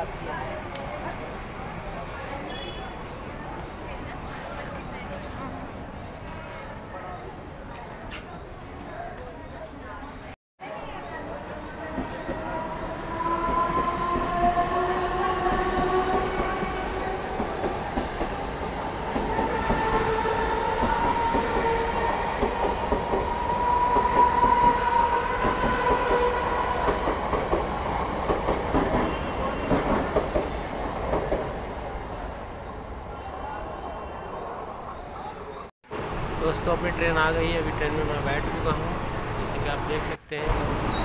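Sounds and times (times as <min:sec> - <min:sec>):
train wheels clattering on rails: 0:26.8 - 0:31.5.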